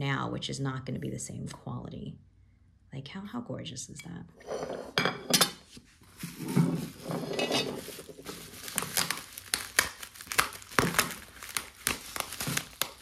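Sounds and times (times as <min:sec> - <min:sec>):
plastic wrapping crinkling: 0:06.0 - 0:13.0.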